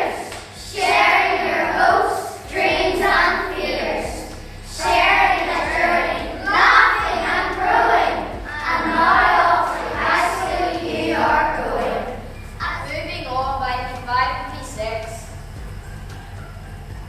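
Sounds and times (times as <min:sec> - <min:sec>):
children singing in unison: 0:00.0 - 0:12.3.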